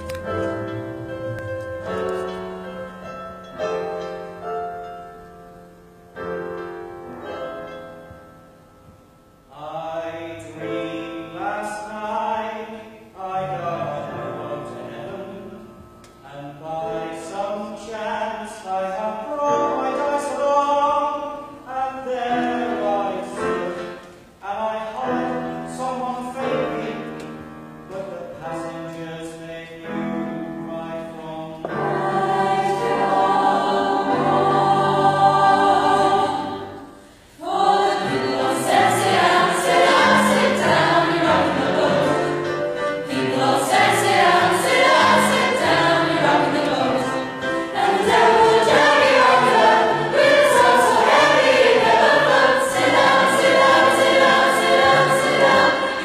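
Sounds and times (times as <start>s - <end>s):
piano accompaniment: 0.0s - 56.0s
choir singing: 31.6s - 56.0s.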